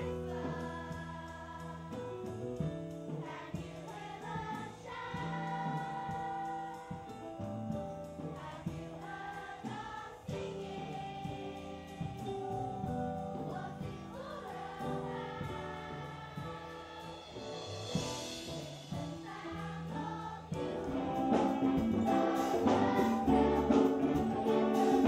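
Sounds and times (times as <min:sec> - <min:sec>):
children's choir singing: 0:00.0 - 0:02.1, 0:03.1 - 0:07.1, 0:08.2 - 0:25.0
live band playing: 0:16.3 - 0:25.0
hand drums beating: 0:17.9 - 0:25.0.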